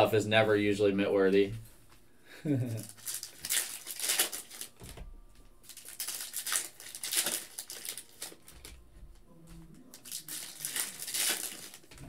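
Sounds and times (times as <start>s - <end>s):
plastic wrapper crinkling and tearing: 2.7s - 5.0s, 5.6s - 8.8s, 9.9s - 12.0s.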